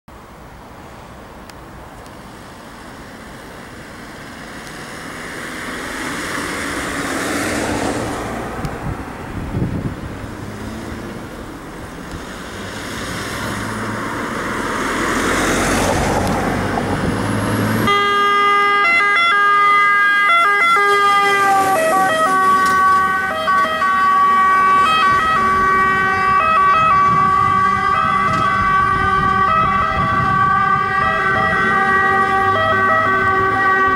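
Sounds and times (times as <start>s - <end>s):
fire engine passing: 0.2s - 33.9s
siren wailing: 17.8s - 33.9s.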